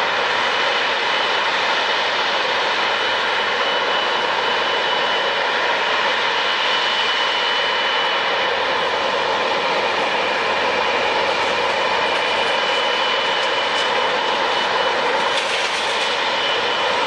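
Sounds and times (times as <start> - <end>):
jet engines running: 0.0 - 17.0.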